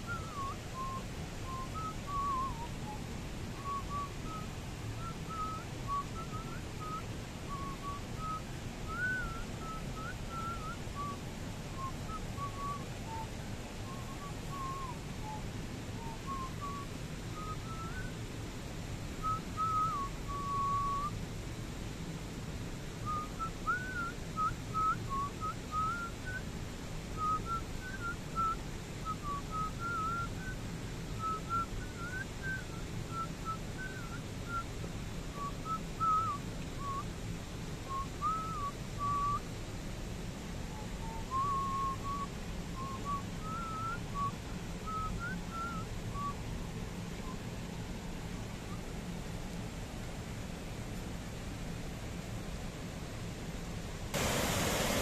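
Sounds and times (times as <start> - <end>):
low background noise: 0.0 - 55.0
person whistling a tune: 0.1 - 2.7, 19.2 - 21.1, 29.2 - 30.5, 31.2 - 34.6, 35.4 - 37.0, 37.9 - 39.4, 41.0 - 46.4.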